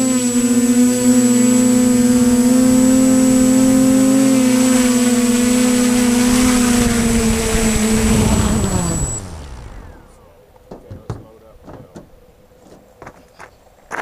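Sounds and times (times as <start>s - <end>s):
electric motors and propellers whining: 0.0s - 10.8s.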